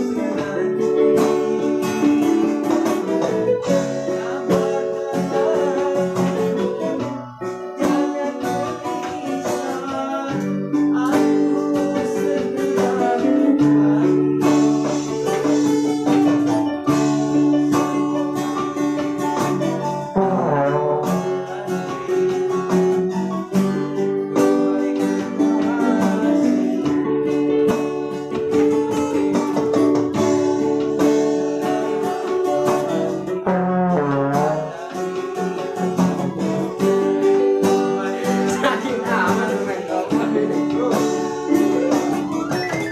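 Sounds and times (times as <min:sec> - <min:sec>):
electronic keyboards: 0:00.0 - 0:42.9
strummed acoustic guitar: 0:00.0 - 0:42.9
trombone: 0:12.8 - 0:27.0, 0:29.8 - 0:42.6.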